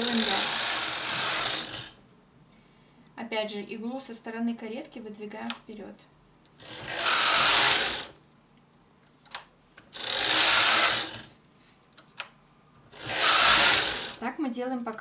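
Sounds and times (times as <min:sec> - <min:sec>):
knitting machine carriage sliding: 0:13.0 - 0:14.2.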